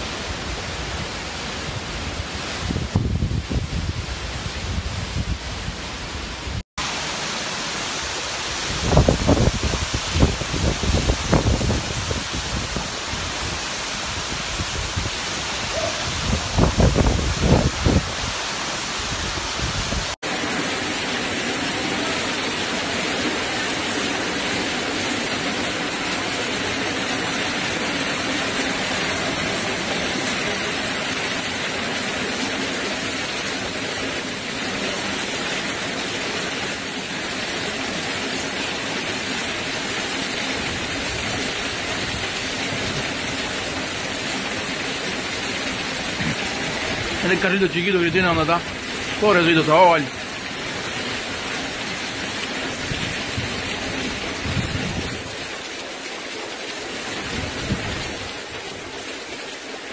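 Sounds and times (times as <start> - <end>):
heavy rain and wind: 0.0 - 59.9
wind gusting against microphone: 0.1 - 6.6, 8.5 - 20.2, 52.7 - 55.5, 57.2 - 58.9.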